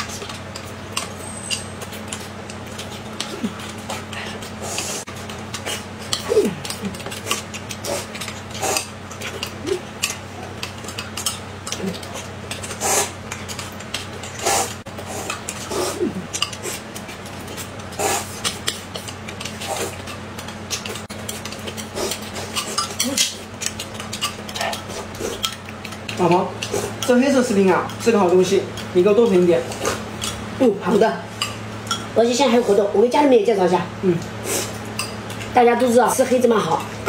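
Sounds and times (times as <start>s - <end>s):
slurping: 0.0s - 27.1s.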